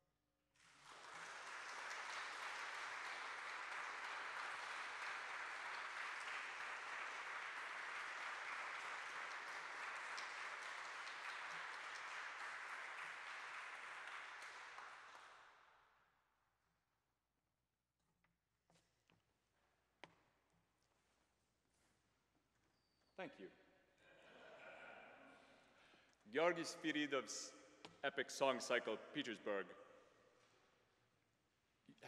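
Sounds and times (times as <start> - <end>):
audience applauding: 0.6 - 15.4.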